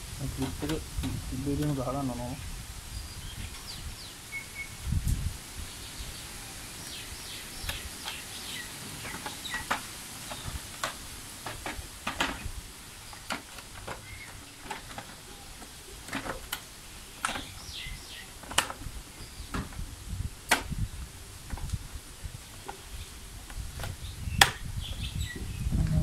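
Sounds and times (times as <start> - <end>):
birds chirping: 0.0 - 26.0
plastic panels clicking and knocking: 9.0 - 12.5, 13.1 - 17.6, 18.4 - 19.8, 20.5 - 20.8.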